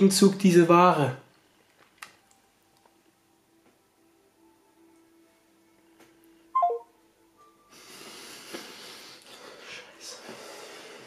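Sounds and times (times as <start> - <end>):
falling phone beep: 6.6 - 6.9.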